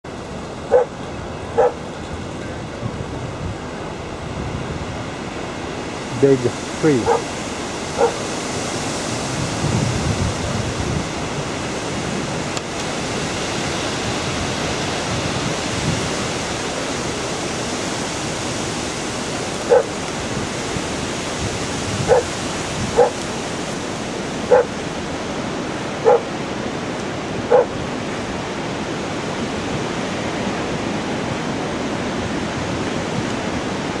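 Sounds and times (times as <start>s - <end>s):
steady rushing noise: 0.0s - 34.0s
dog barking: 0.7s - 0.9s, 1.6s - 1.8s, 7.0s - 7.3s, 8.0s - 8.3s, 19.6s - 20.0s, 22.0s - 22.4s, 23.0s - 23.2s, 24.5s - 24.8s, 26.0s - 26.3s, 27.5s - 27.8s.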